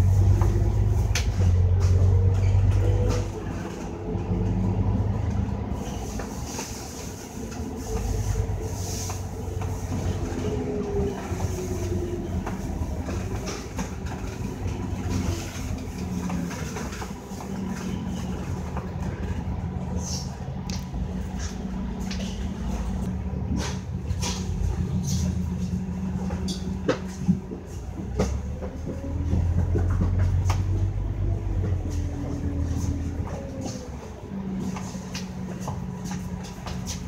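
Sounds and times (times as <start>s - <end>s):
bus engine drone from inside: 0.0s - 37.0s.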